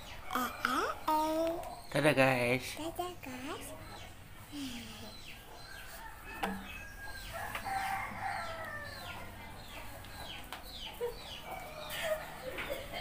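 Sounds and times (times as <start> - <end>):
chickens calling: 3.4 - 13.0.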